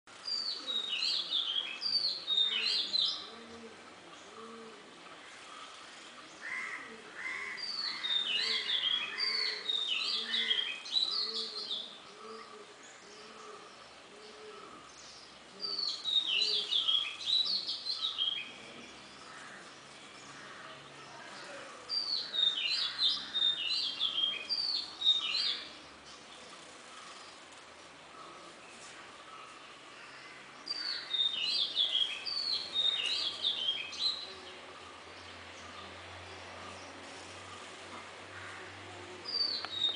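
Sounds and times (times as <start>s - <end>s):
bird singing bright notes: 30.7s - 35.0s, 39.3s - 39.9s.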